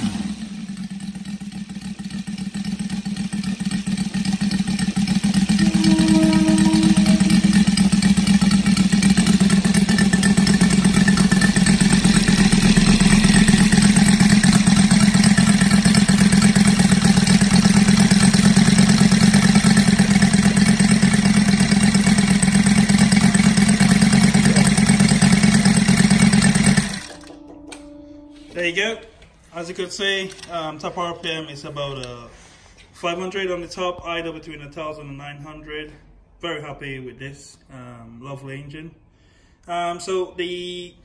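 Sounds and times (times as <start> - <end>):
model aircraft engine running: 5.5 - 27.2.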